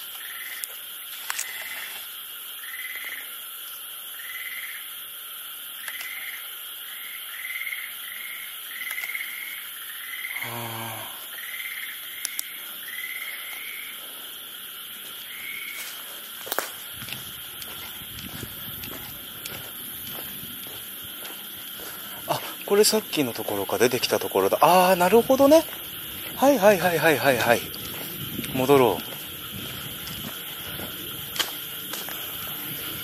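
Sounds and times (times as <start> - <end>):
night insects chorus: 0.0 - 33.0
low human grunt: 10.4 - 11.3.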